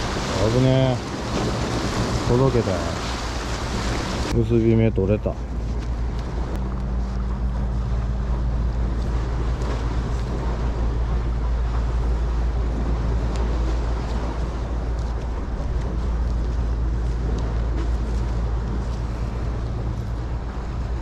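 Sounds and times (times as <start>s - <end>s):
sea surf washing: 0.0s - 21.0s
wind buffeting microphone: 0.0s - 21.0s
steady low hum: 3.1s - 21.0s.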